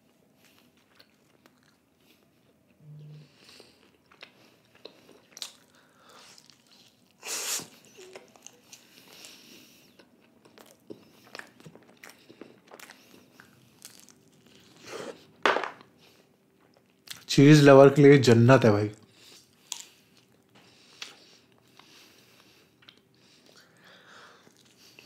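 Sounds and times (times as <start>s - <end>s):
chewing pizza: 0.0s - 17.3s, 18.9s - 25.0s.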